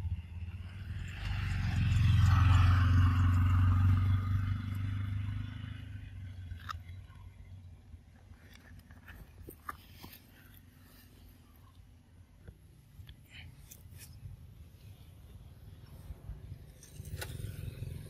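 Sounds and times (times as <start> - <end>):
vehicle passing on road: 0.0 - 7.2, 14.1 - 18.0.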